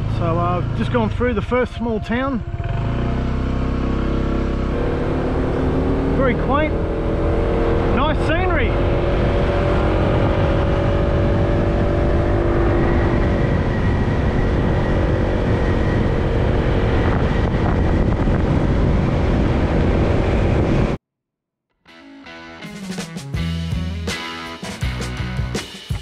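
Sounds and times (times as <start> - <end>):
scooter engine running: 2.0 - 8.2
wind noise on microphone: 4.8 - 21.0.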